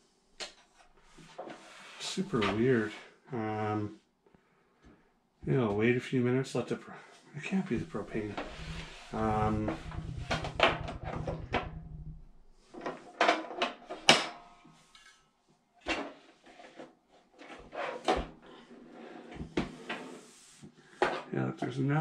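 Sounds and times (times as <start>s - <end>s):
low fluttering rumble: 8.0s - 12.4s.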